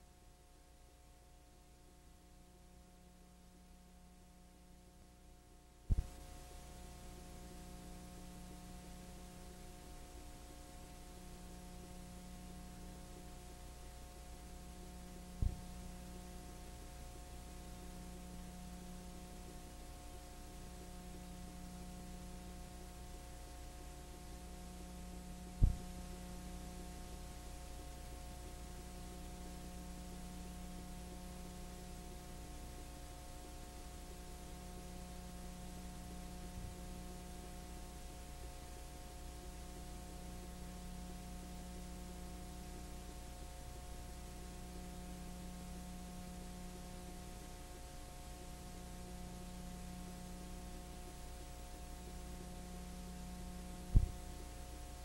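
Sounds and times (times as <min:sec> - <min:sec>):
electrical hum: 0:00.0 - 0:55.0
faint hiss: 0:00.0 - 0:55.0.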